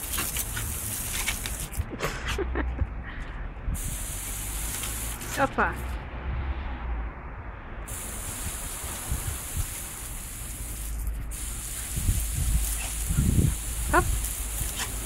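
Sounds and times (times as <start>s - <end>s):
hose spraying water: 0.0s - 1.8s, 3.8s - 5.7s, 7.9s - 15.0s.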